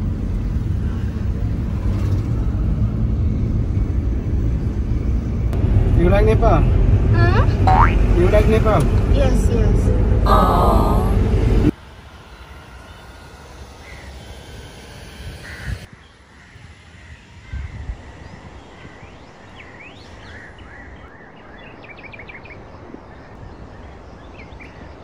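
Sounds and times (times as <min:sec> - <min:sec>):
birds calling: 0:07.2 - 0:08.2, 0:13.7 - 0:14.5, 0:15.4 - 0:25.0.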